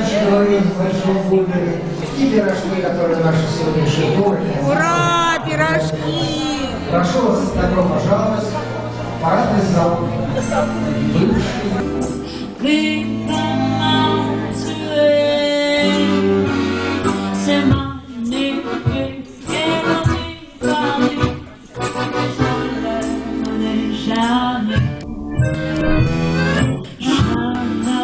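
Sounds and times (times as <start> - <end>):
accordion: 0.0 - 28.0
woman singing: 12.6 - 16.4, 17.3 - 21.4, 22.4 - 25.0, 26.6 - 28.0.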